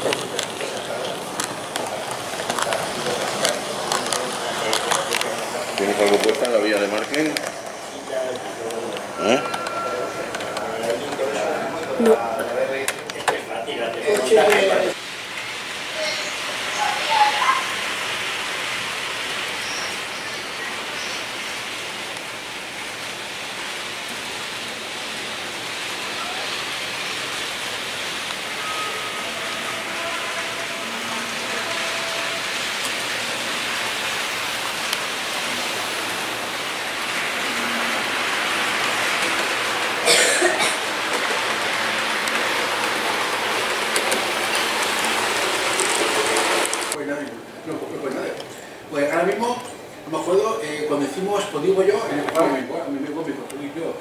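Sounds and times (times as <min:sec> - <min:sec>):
model train rolling hiss: 0:00.0 - 0:09.7, 0:14.3 - 0:47.6.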